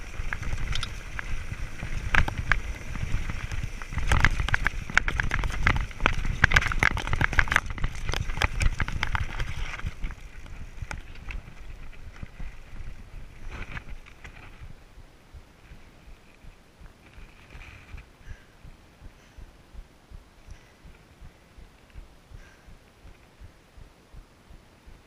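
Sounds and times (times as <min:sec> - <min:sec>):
bike rattling over rocks: 0:00.0 - 0:14.8
wind rumble on microphone: 0:00.0 - 0:25.0.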